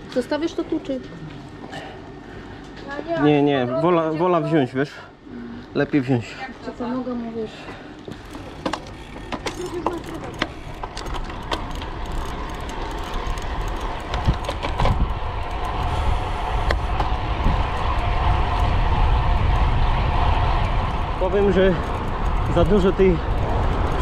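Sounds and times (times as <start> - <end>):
wind and rolling noise: 5.9 - 24.0
bicycle clicks: 7.6 - 24.0.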